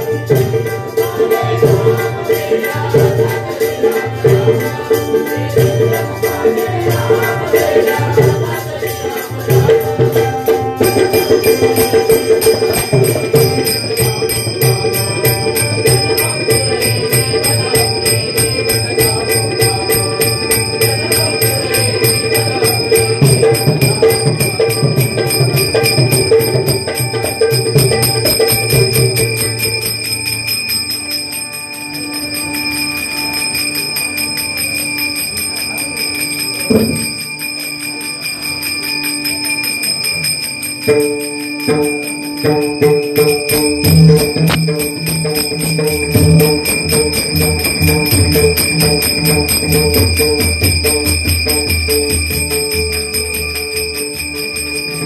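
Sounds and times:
drum playing: 0.0 - 29.9, 36.7 - 37.2, 40.9 - 53.4
hand cymbals clashing: 0.0 - 55.0.

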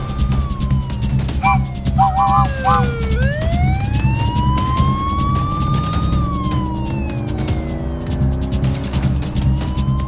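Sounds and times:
background music with steady beat: 0.0 - 10.0
cartoon police siren wailing: 0.4 - 7.5
short chirping blips: 1.4 - 2.9.

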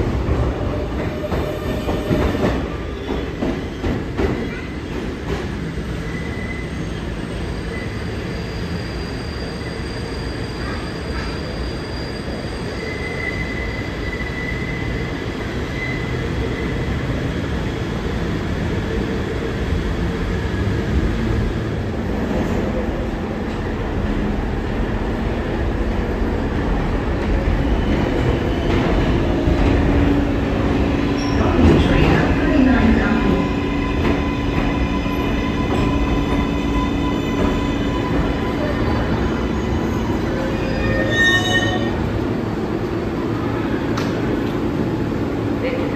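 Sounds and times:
subway train rumble: 0.0 - 45.9
high wheel squeal: 6.1 - 15.0, 34.9 - 42.0.

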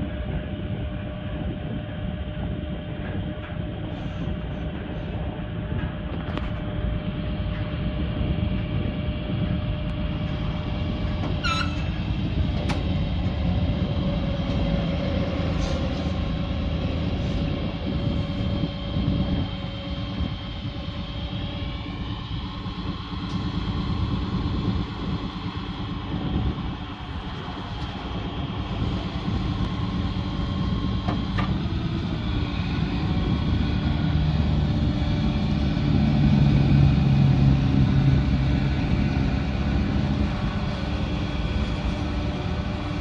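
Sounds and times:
diesel engine running: 0.0 - 43.0
brief squeak: 11.4 - 11.9.

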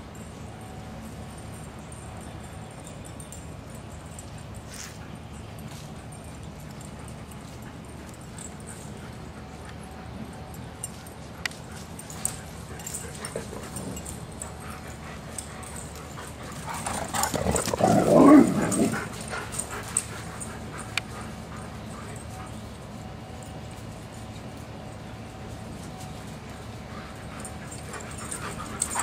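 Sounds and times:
dogs whining and barking: 6.2 - 23.6, 26.5 - 29.0.

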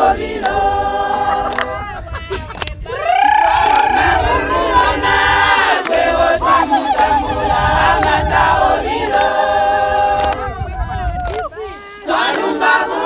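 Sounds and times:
group singing long notes: 0.0 - 1.9, 3.0 - 13.0.

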